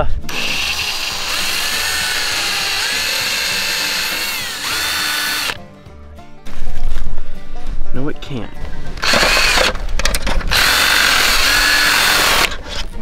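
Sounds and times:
power drill boring through leather: 0:00.3 - 0:05.6, 0:09.0 - 0:09.7, 0:10.5 - 0:12.6.

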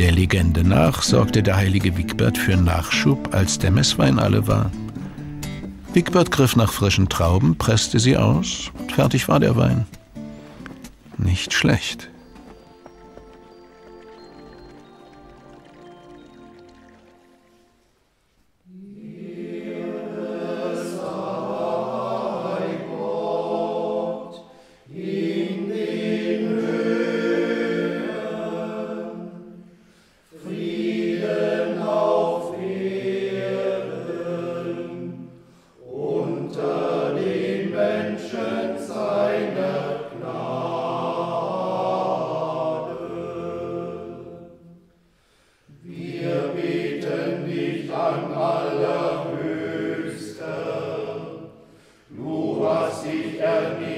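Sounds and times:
choir singing unaccompanied chant: 0:18.6 - 0:44.9, 0:45.7 - 0:53.9.

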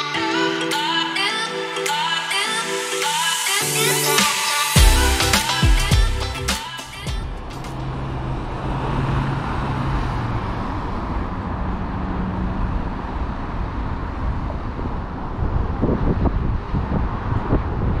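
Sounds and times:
traffic noise: 0:06.9 - 0:18.0
vehicle engine hum: 0:07.0 - 0:18.0
wind buffeting microphone: 0:13.6 - 0:18.0.

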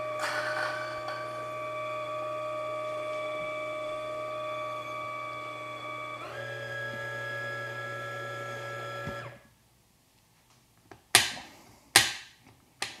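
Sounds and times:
coffee grinder motor whining: 0:00.0 - 0:09.4.

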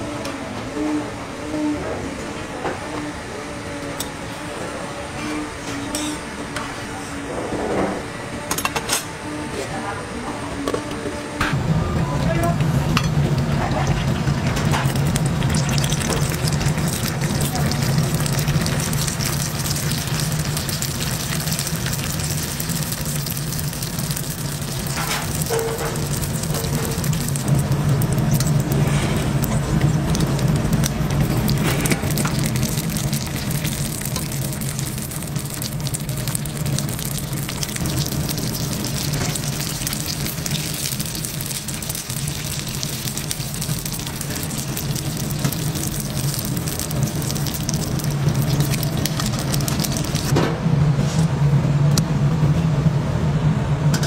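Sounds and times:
food deep-frying in oil: 0:12.0 - 0:50.4.

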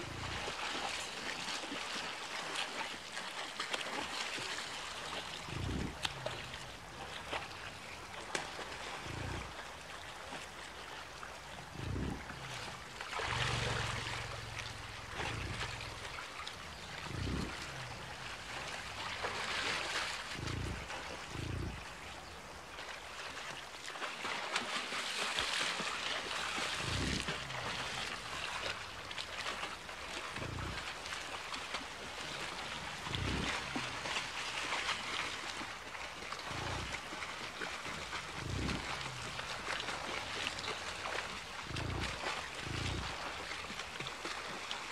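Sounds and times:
bison grunting: 0:00.0 - 0:00.6, 0:05.2 - 0:07.3, 0:09.0 - 0:09.7, 0:11.6 - 0:19.4, 0:20.2 - 0:22.0, 0:26.7 - 0:28.9, 0:30.2 - 0:31.1, 0:32.5 - 0:34.6, 0:36.4 - 0:37.1, 0:37.8 - 0:43.5
rushing river water: 0:00.0 - 0:44.9
splashing in water: 0:00.0 - 0:44.9.

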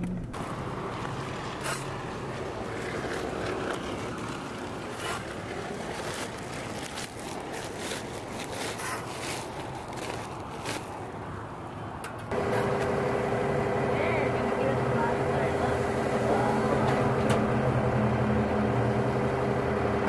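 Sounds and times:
plastic tarp rustling and crackling: 0:00.9 - 0:11.2.

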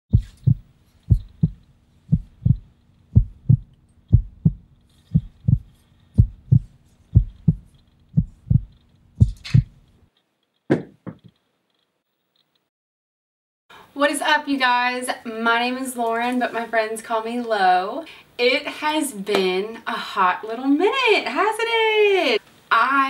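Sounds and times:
heartbeat thuds: 0:00.1 - 0:09.8
faint steady hum: 0:00.1 - 0:10.1.

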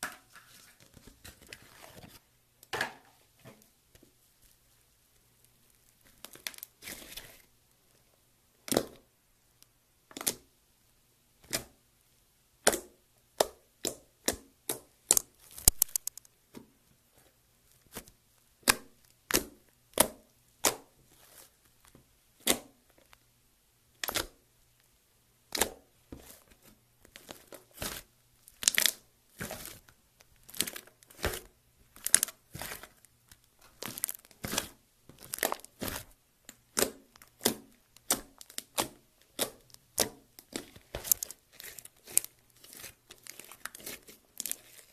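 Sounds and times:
slime popping and crackling: 0:13.8 - 0:16.4, 0:25.5 - 0:44.9.

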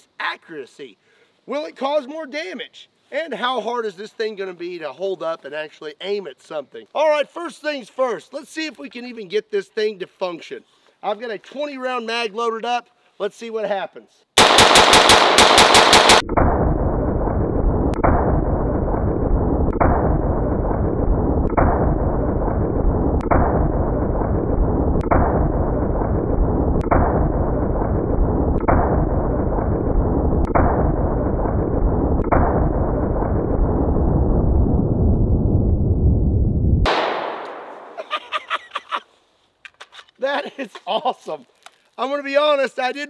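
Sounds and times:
rapid rifle gunfire: 0:14.4 - 0:16.6, 0:36.9 - 0:37.9
slowed-down muffled gunshots: 0:14.4 - 0:38.0.

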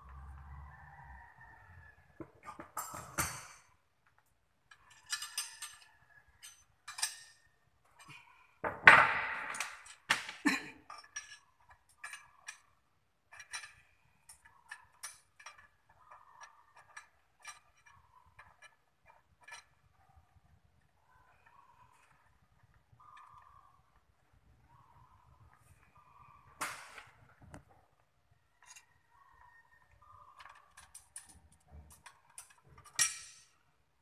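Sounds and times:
metal tool clinking on fittings: 0:04.7 - 0:07.5, 0:10.9 - 0:12.7, 0:13.3 - 0:19.7, 0:30.4 - 0:33.6.

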